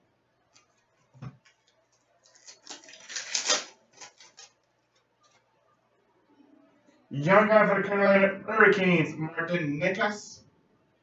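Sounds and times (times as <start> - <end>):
cards clicking and rustling: 0.6 - 4.6.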